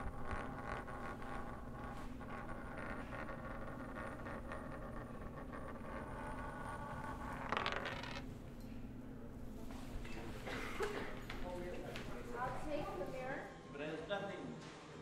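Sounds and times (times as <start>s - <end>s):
spinning top scraping: 0.0s - 8.3s
spinning top whirring and rattling: 0.0s - 8.4s.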